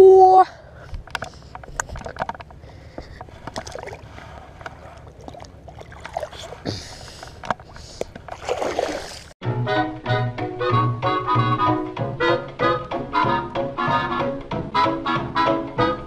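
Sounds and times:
handling clicks and rustles: 0.9 - 5.1
shallow water sloshing: 1.4 - 9.4
fish splashing into water: 3.5 - 7.2, 7.8 - 9.4.

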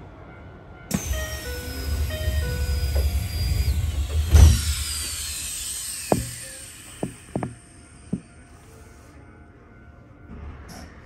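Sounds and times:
train background rumble: 0.0 - 5.4
train doors sliding shut: 0.9 - 5.2
falling whine: 0.9 - 8.4.

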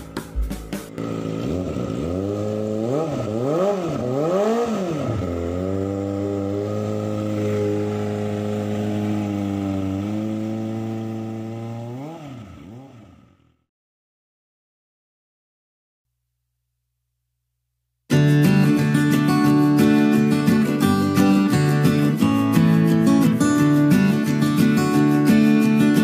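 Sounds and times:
motorcycle engine revving: 0.0 - 13.7.

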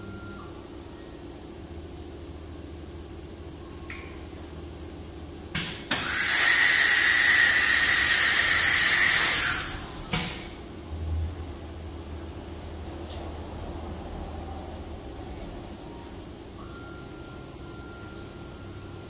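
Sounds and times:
short pneumatic bursts: 5.9 - 10.5.

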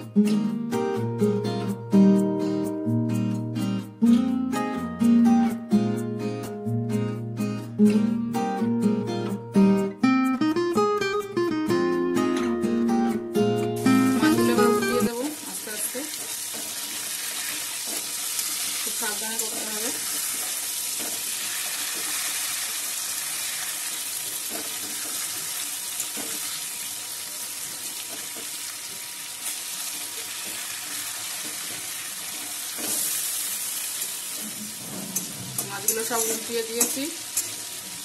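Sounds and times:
fish sizzling in oil: 13.8 - 38.0
metal spatula clicking on pan: 35.2 - 37.6.

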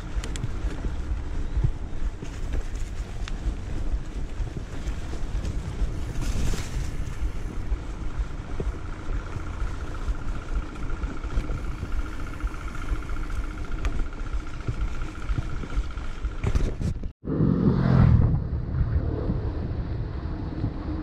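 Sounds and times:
motorcycle engine rumbling: 0.0 - 21.0
thin steady whine: 5.8 - 16.6.

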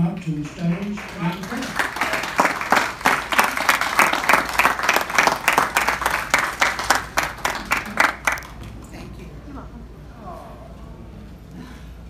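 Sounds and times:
people applauding: 0.0 - 8.9.

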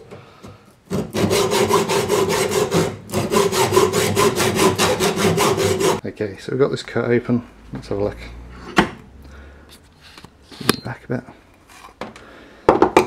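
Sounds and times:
hacksaw cutting metal: 0.9 - 6.0.

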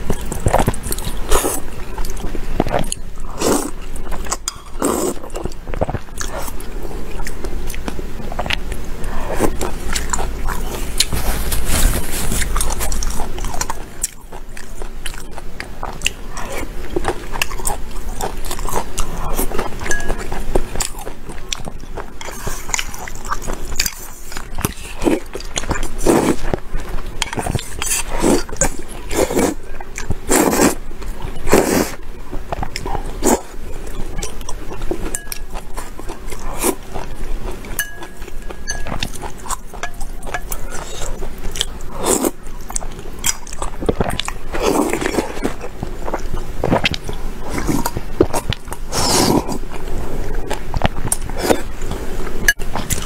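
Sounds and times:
person chewing: 0.0 - 53.0
slurping noodles: 4.8 - 5.3, 26.0 - 26.5, 27.4 - 29.6, 30.2 - 30.8, 31.5 - 32.0, 44.6 - 45.6, 48.8 - 50.3.

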